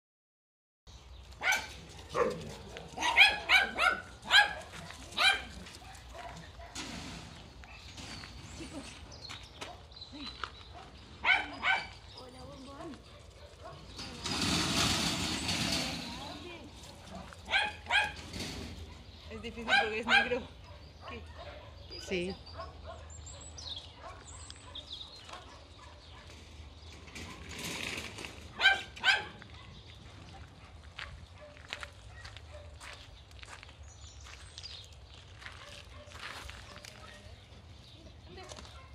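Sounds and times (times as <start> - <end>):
dog barking: 1.4 - 6.8, 10.8 - 12.0, 13.1 - 13.9, 17.5 - 18.2, 19.7 - 21.9, 22.6 - 26.3, 28.6 - 29.8, 31.0 - 32.8, 35.6 - 37.3.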